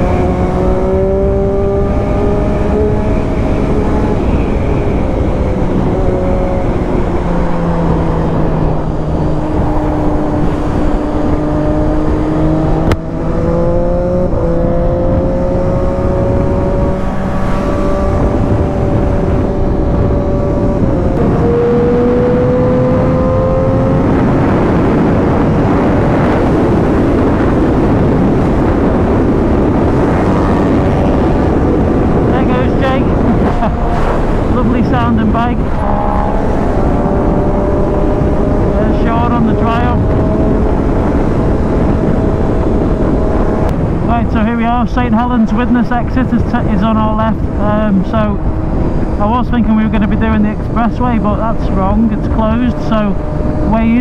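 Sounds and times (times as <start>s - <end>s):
wind and road noise: 0.0s - 54.0s
motorcycle engine running: 25.2s - 44.9s.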